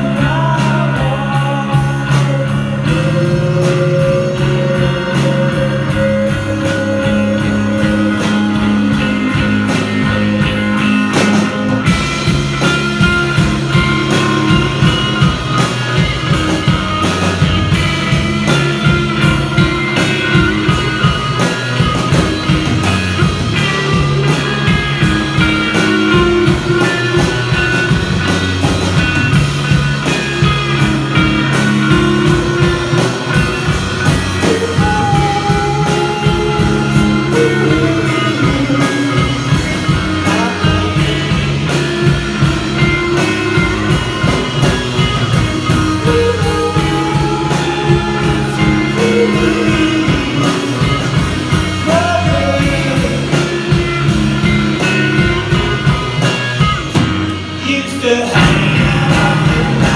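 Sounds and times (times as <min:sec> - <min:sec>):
person singing: 0:00.0 - 0:11.5, 0:30.0 - 0:55.8, 0:57.6 - 0:59.9
drum kit beat: 0:00.0 - 0:59.9
electric guitar: 0:00.0 - 0:59.9.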